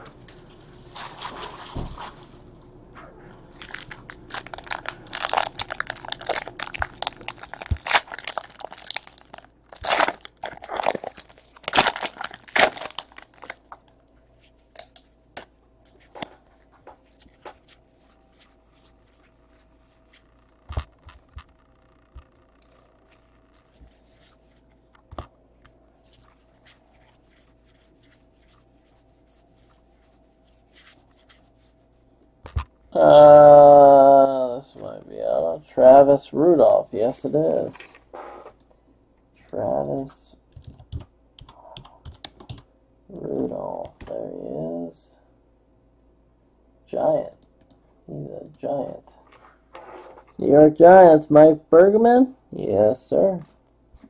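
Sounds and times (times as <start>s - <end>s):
foil wrappers tearing and crinkling: 3.6s - 13.8s
cards being handled and flipped: 14.7s - 21.4s.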